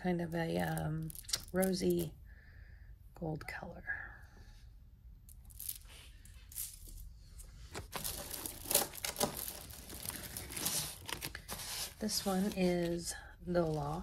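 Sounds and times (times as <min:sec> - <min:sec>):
glass beads clicking: 0:00.6 - 0:02.1
plastic bag crinkling: 0:07.8 - 0:14.0.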